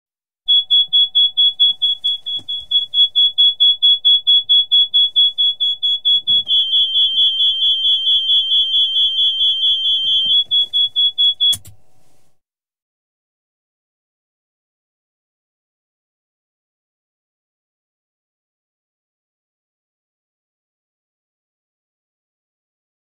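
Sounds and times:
high pulsing warning beeps: 0.5 - 11.6
lower warning tone: 0.5 - 11.8
sharp click: 11.5 - 11.8.

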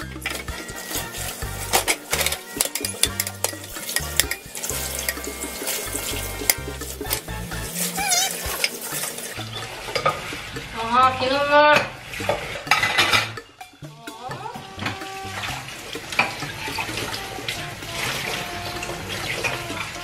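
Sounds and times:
tap running onto glass bowls: 1.5 - 7.3
glass and crockery clinking: 1.7 - 10.3
short rising pitched cry: 7.7 - 8.5.

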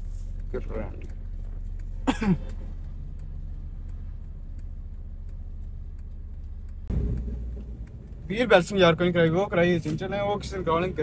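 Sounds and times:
car engine and road hum: 0.0 - 11.0
faint regular ticking: 0.0 - 11.0
loud low rumble: 6.6 - 8.7.

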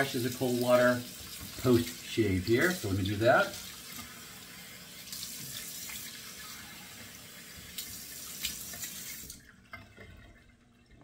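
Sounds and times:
faint water drips: 0.0 - 11.0
water running from sink tap: 0.0 - 11.0.

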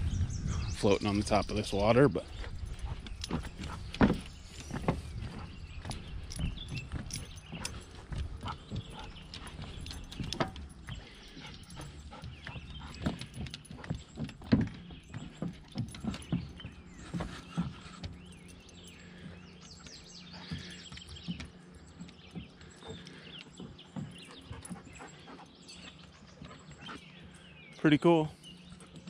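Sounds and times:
footsteps on hollow wooden boards: 0.0 - 29.0.

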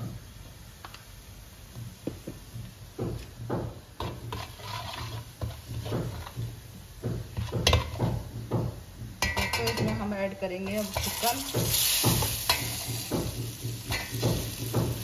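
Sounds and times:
metal spatula scraping a pot: 4.0 - 6.4, 9.2 - 13.1, 13.8 - 14.7.

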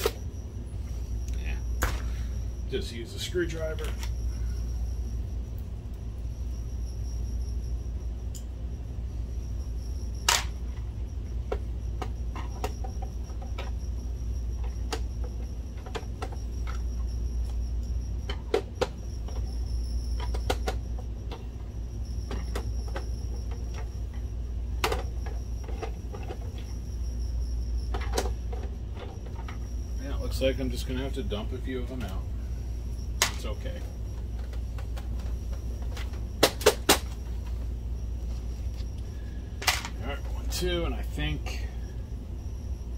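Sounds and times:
low steady hum: 0.0 - 42.9.

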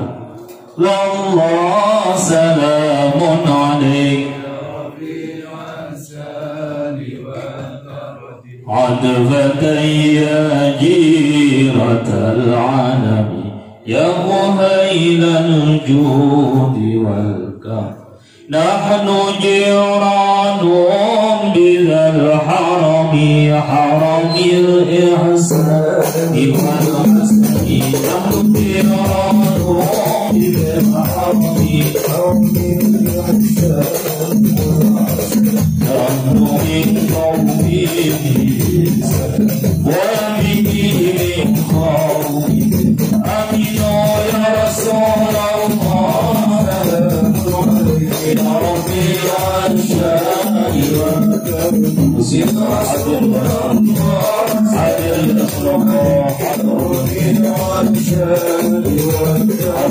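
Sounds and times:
men singing in unison: 0.0 - 59.9
jingling percussion: 23.8 - 59.9
frame drums: 25.4 - 59.9.

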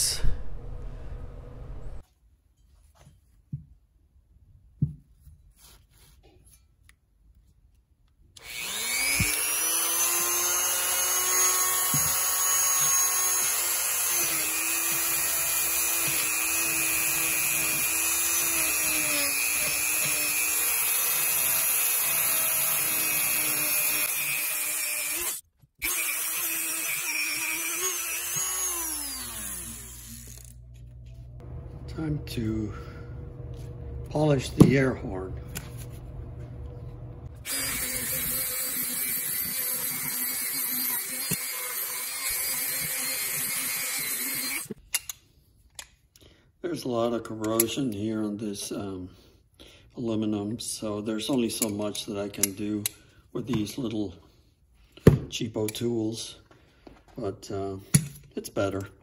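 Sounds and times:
rotary tool high-pitched whine: 8.4 - 30.6, 37.4 - 44.8.

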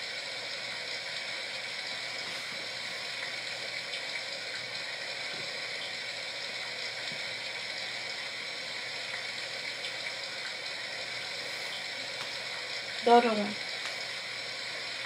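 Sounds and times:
steady even hiss: 10.6 - 15.0.

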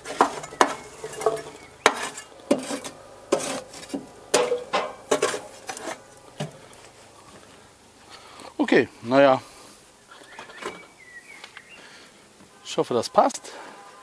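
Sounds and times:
spade scraping charcoal: 0.0 - 8.4.

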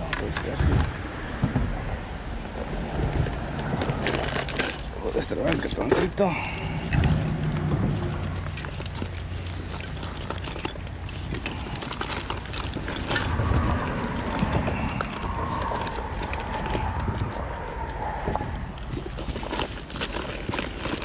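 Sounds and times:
small items knocking and clicking: 3.6 - 17.2.

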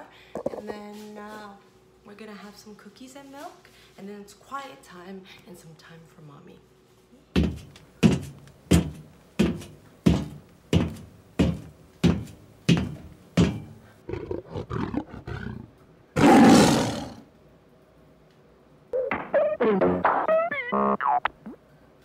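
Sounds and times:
dinosaur roar: 14.1 - 17.3.

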